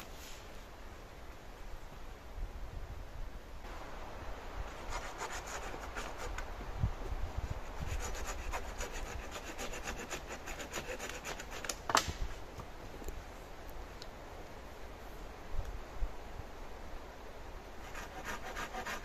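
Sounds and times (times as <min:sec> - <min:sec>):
hand saw cutting wood: 0:07.8 - 0:11.8, 0:17.9 - 0:19.0.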